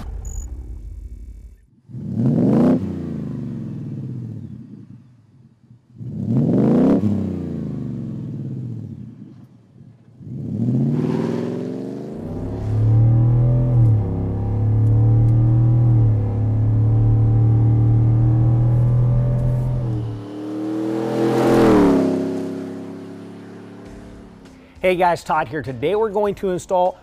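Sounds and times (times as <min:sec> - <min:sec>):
truck engine revving: 0:10.2 - 0:24.8
loud exhaust drone: 0:12.1 - 0:24.5.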